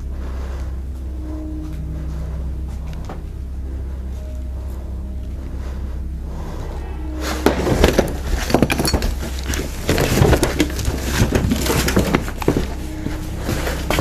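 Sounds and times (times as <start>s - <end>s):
steady low hum: 0.0s - 14.0s
objects clattering and crashing: 7.1s - 14.0s.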